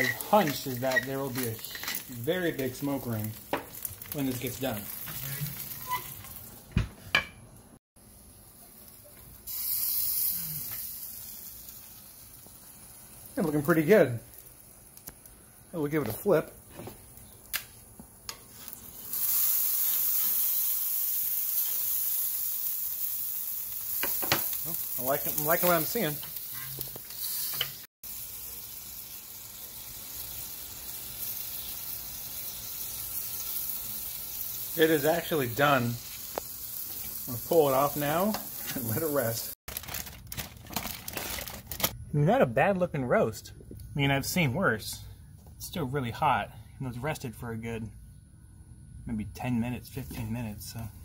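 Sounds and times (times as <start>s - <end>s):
meat sizzling on grill: 0.0s - 6.8s, 8.0s - 39.6s.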